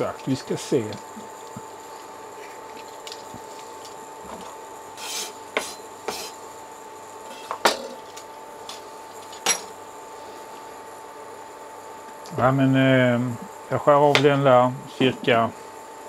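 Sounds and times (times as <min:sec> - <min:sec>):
knife scraping on cutting board: 0:05.0 - 0:06.4.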